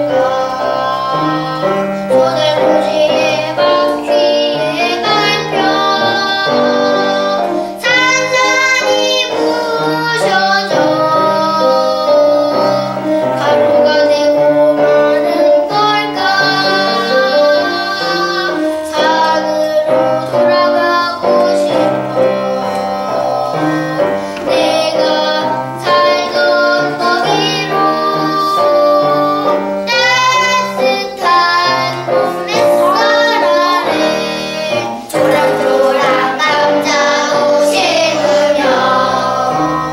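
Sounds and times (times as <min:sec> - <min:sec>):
children singing: 0:00.0 - 0:39.9
piano accompaniment: 0:00.0 - 0:39.9.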